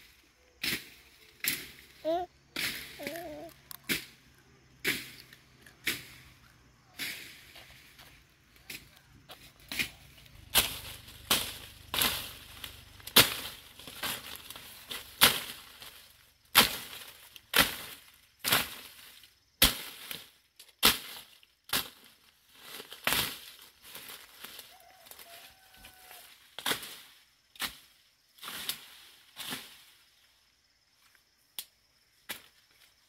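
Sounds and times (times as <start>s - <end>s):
machete chopping undergrowth: 0.6s - 1.9s, 3.8s - 4.2s, 4.8s - 6.3s, 7.0s - 24.6s, 26.6s - 29.8s.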